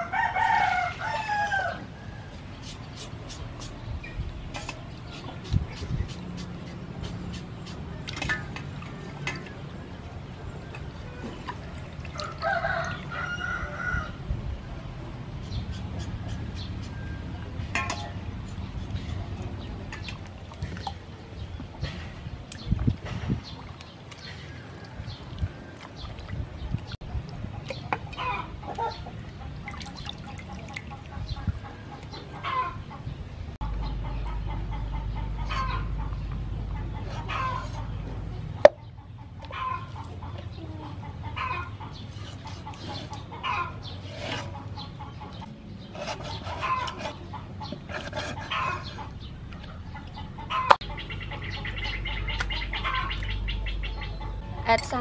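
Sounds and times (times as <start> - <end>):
chickens clucking: 27.1 - 29.7, 30.5 - 54.8.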